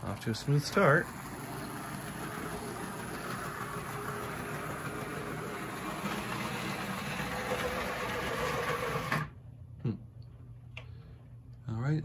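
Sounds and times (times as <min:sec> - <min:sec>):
model train rolling on track: 0:00.0 - 0:09.3
model locomotive motor running: 0:00.1 - 0:09.3.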